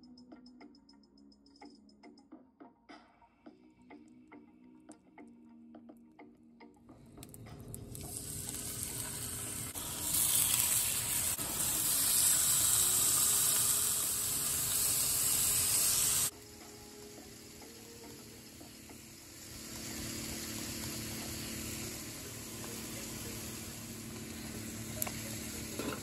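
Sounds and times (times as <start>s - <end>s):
food sizzling in a frying pan: 7.8s - 26.0s.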